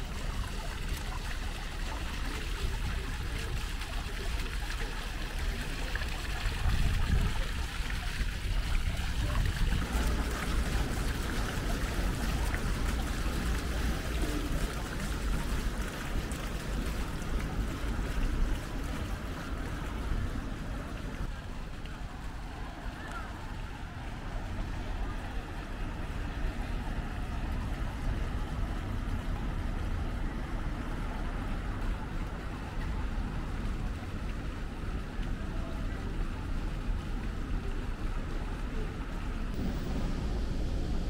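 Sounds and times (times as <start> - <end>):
steady rushing street noise: 0.0 - 41.0
low rumble: 38.5 - 41.0.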